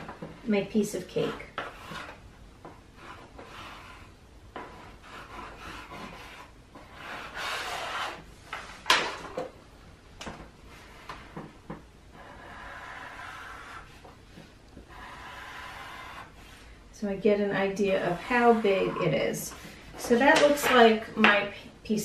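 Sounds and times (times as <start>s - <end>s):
pencil scratching on paper: 0.7s - 2.2s, 3.0s - 8.2s, 12.1s - 14.1s, 14.9s - 16.7s, 17.8s - 19.8s.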